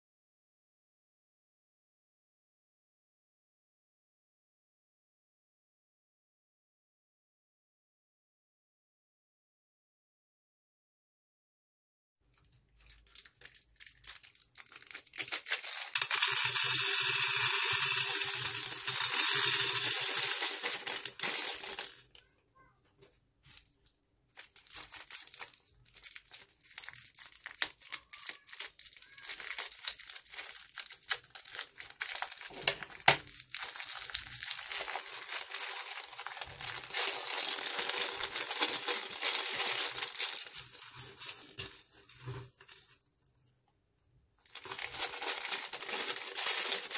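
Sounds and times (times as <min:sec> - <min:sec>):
plastic bags crinkling: 0:12.3 - 0:16.6, 0:18.3 - 0:22.2, 0:23.5 - 0:42.9, 0:44.4 - 0:46.9
beads rattling into glass dish: 0:13.9 - 0:22.2, 0:26.2 - 0:42.9, 0:44.5 - 0:46.9.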